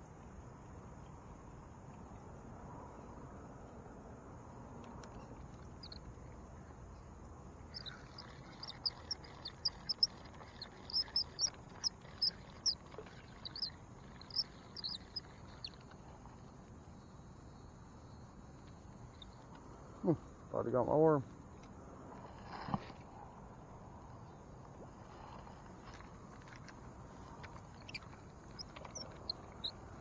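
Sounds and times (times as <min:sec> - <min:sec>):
insects droning: 0:00.0 - 0:30.0
animal chirping: 0:05.8 - 0:06.0, 0:07.7 - 0:15.8, 0:27.6 - 0:29.8.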